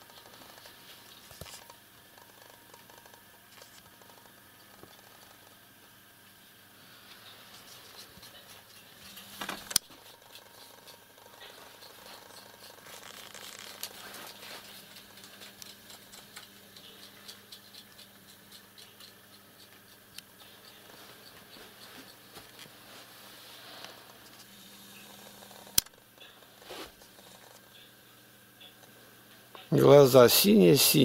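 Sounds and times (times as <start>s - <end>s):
low steady hum: 0.0s - 31.0s.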